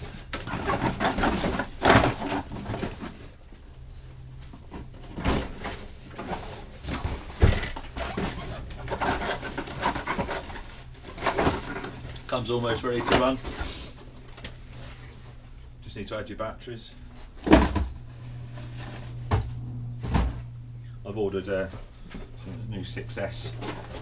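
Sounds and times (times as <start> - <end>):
cardboard and plastic rustling: 0.0 - 3.4, 4.1 - 15.6, 21.6 - 24.0.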